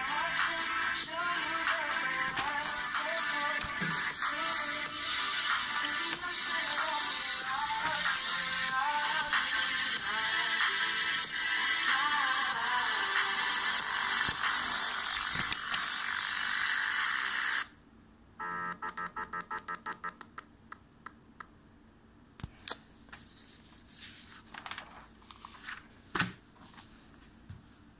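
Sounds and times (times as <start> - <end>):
background pop music: 0.0 - 14.9
paper rustling: 23.0 - 27.0.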